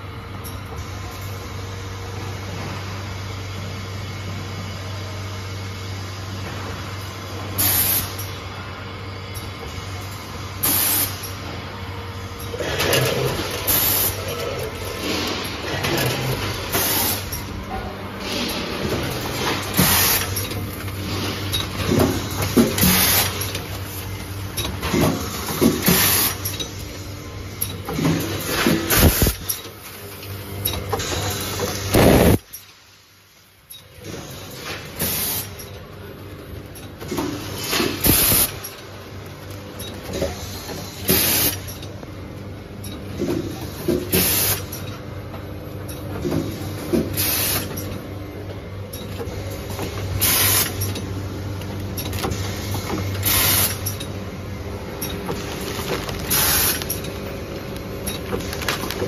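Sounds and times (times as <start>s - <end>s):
machine mechanical hum: 0.0s - 59.0s
short pneumatic hiss: 44.1s - 44.6s, 47.2s - 47.6s, 53.2s - 53.8s.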